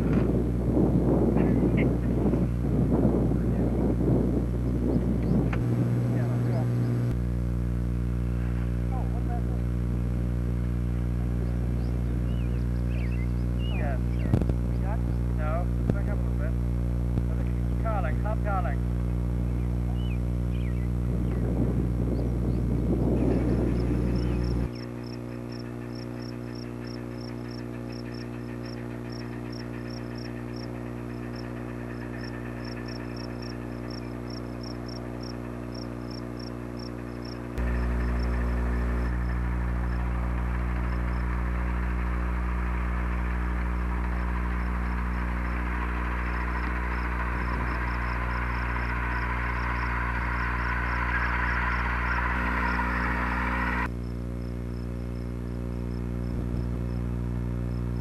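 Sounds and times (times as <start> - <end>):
loud steady noise: 0.0 - 58.0
low tape hum: 0.0 - 58.0
crickets chirping: 19.7 - 58.0.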